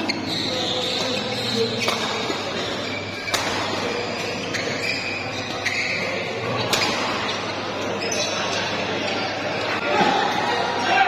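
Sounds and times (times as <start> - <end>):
shoes squeaking on court: 0.0 - 9.8
racket striking shuttlecock: 1.8 - 2.4, 3.2 - 4.0, 6.7 - 7.3.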